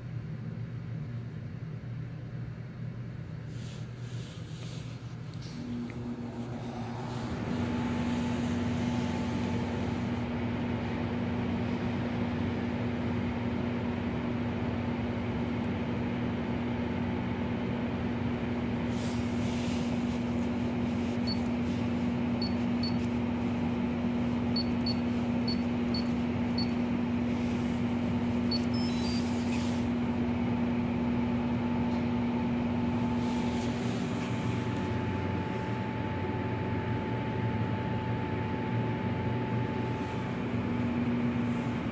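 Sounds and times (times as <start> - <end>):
shaker incubator humming: 0.0 - 41.9.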